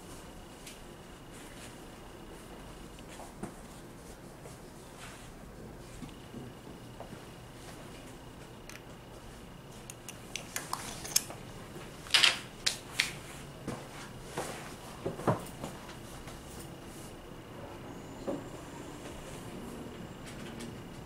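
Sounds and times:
small jars and tools clicking: 9.9 - 11.3.

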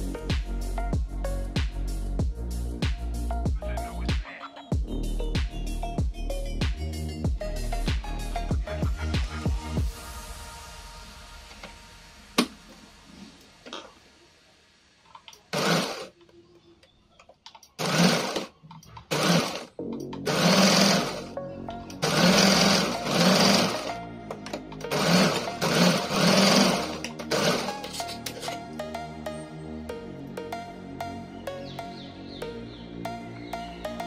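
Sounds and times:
sewing machine stitching: 15.4 - 16.1, 17.8 - 21.3, 22.0 - 24.0, 24.8 - 28.5.

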